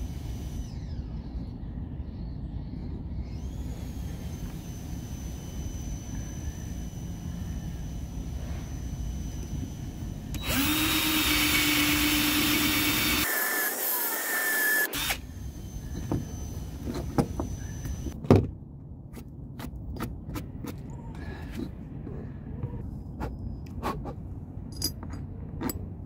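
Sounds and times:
cordless drill whining: 0.0s - 1.3s, 3.2s - 18.2s.

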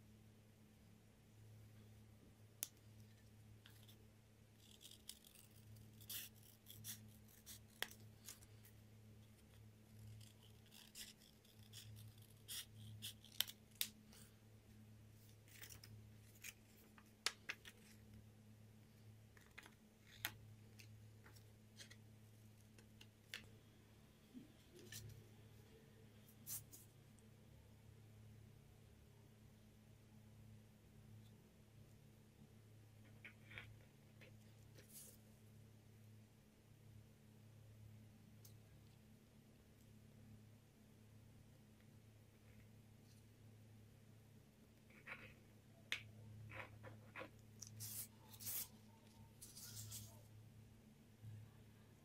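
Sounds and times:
faint low hum: 0.0s - 52.0s
scissors cutting paper: 4.6s - 8.4s, 10.0s - 13.9s
paper being handled: 47.6s - 50.2s.

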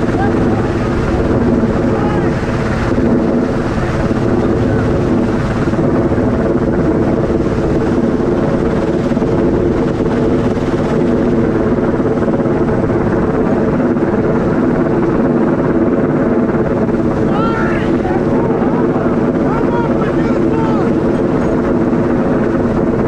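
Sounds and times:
helicopter hovering: 0.0s - 23.0s.

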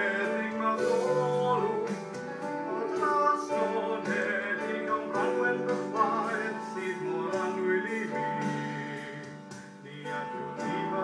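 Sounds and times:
held instrumental notes: 0.0s - 11.0s
person singing: 0.0s - 11.0s.

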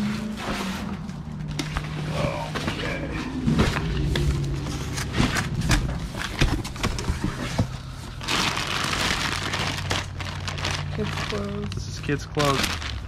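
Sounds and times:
plastic bag crinkling: 7.8s - 13.0s.

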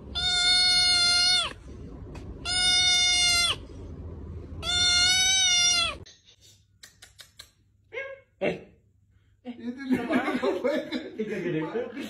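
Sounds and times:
kitten meowing loudly: 0.1s - 1.6s, 2.4s - 3.6s, 4.6s - 6.0s.

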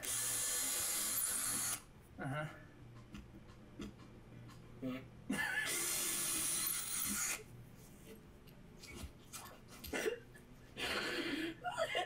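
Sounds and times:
drill boring through plywood: 0.0s - 1.8s, 5.7s - 7.4s.

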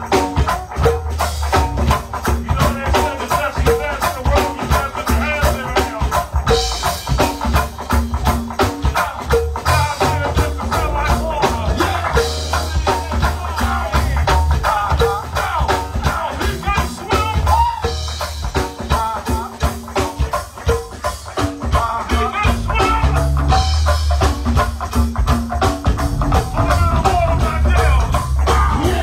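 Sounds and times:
band playing driving beat: 0.0s - 29.0s
person singing: 2.2s - 6.4s, 8.6s - 23.6s, 26.3s - 29.0s.

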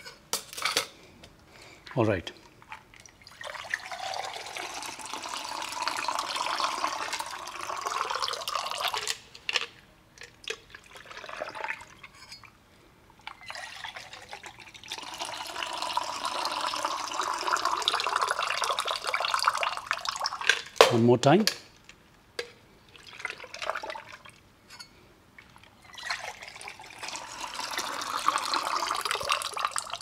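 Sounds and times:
liquid and ice pouring between tins: 2.7s - 9.6s, 10.2s - 12.2s, 13.2s - 20.8s, 22.9s - 24.4s, 25.4s - 30.0s.

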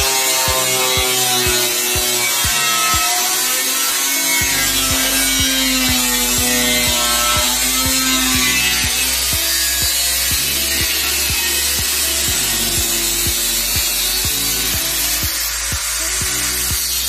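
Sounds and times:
angle grinder cutting steel: 0.0s - 17.0s
background music with beat: 0.0s - 17.0s.

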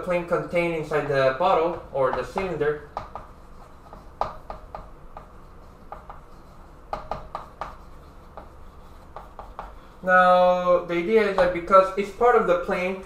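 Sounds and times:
chalk tapping and stroking on chalkboard: 1.5s - 10.1s, 11.2s - 11.8s.

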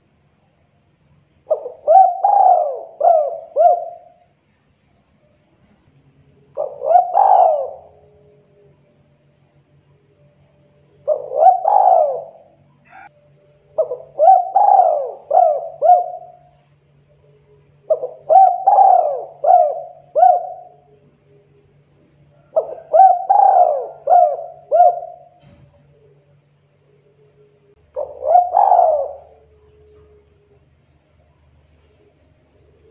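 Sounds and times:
dove cooing: 1.5s - 4.2s, 6.5s - 8.3s, 11.0s - 13.1s, 13.8s - 16.6s, 17.9s - 21.0s, 22.4s - 26.2s, 27.8s - 30.4s.

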